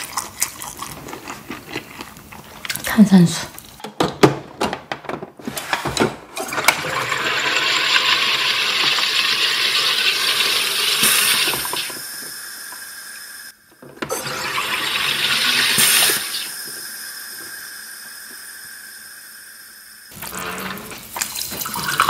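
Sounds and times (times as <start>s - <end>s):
gas hissing into bottle: 7.6s - 22.0s.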